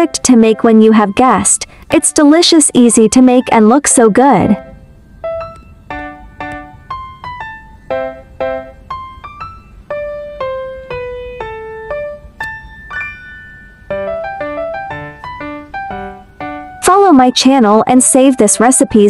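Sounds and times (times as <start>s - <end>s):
piano-style keyboard melody: 0.0s - 19.0s.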